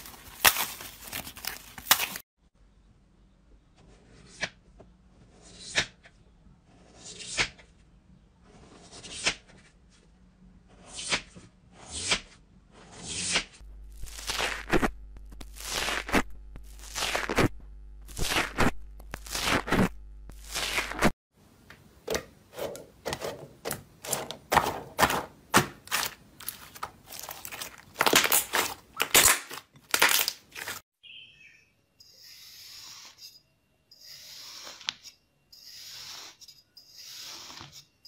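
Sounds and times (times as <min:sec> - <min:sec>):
foam slime crunching: 0:24.0 - 0:30.8.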